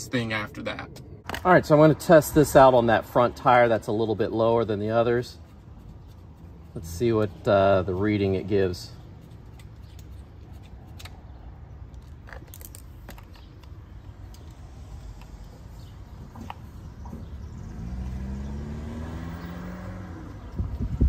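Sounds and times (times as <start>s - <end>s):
passing vehicle engine drone: 17.4s - 21.0s.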